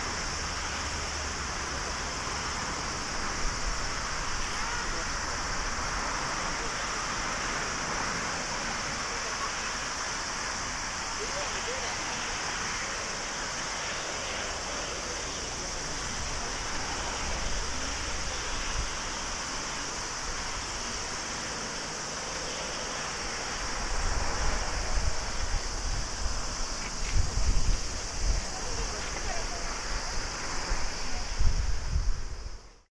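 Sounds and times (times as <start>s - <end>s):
wind buffeting microphone: 23.6s - 32.7s.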